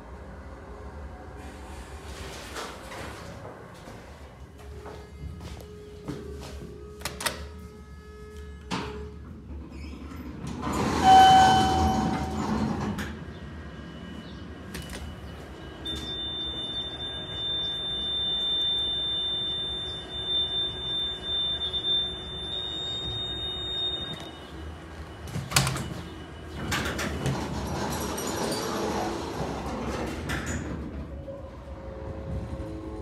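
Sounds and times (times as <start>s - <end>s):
elevator hum and door mechanism: 2.0s - 7.6s, 8.3s - 33.0s
elevator chime ding: 10.8s - 12.9s, 14.0s - 27.4s.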